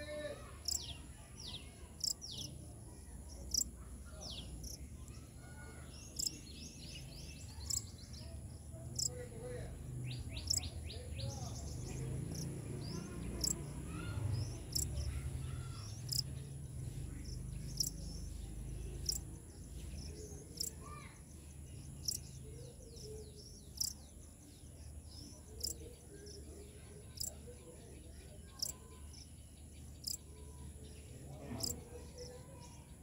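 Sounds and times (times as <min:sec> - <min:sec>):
bird calls: 0:03.5 - 0:08.4, 0:09.0 - 0:16.4
high insect drone: 0:12.2 - 0:13.7, 0:16.0 - 0:16.3, 0:19.0 - 0:19.2
short sharp insect chirp: 0:16.0 - 0:16.3, 0:19.0 - 0:19.2, 0:23.4 - 0:24.0, 0:30.0 - 0:30.2.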